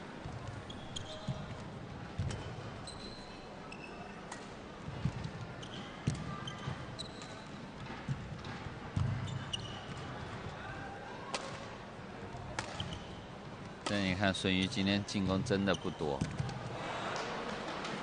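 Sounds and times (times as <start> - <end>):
shoes squeaking on court: 0.3 - 1.6, 2.2 - 4.2, 5.1 - 10.2, 12.6 - 13.3, 15.2 - 16.5
racket striking shuttlecock: 12.6 - 12.8.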